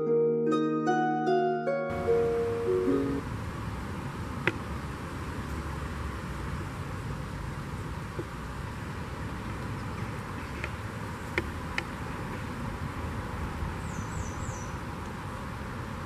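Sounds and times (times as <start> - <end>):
high falling chirps: 0.0 - 3.2.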